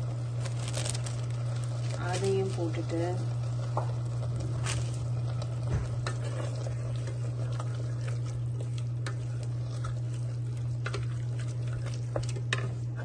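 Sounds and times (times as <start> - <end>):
gravy sizzling: 0.0 - 13.0
steady low hum: 0.0 - 13.0
wooden spoon scraping a pot: 6.0 - 13.0.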